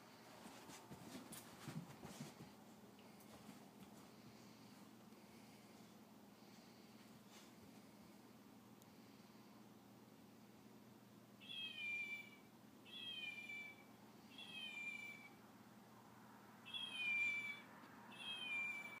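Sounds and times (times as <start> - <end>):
toy electronic meows: 11.4 - 15.4, 16.7 - 19.0.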